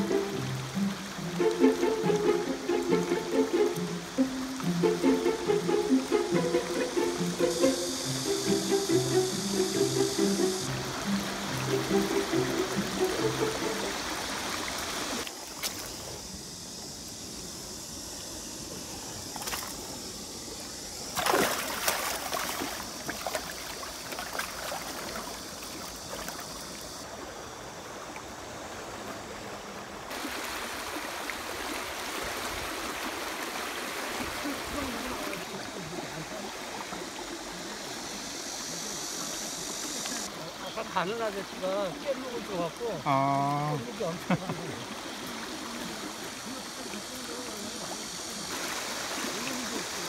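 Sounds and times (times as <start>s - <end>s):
river rapids rushing: 0.0s - 15.3s
water splashing: 0.0s - 16.2s, 21.0s - 27.0s, 30.1s - 50.0s.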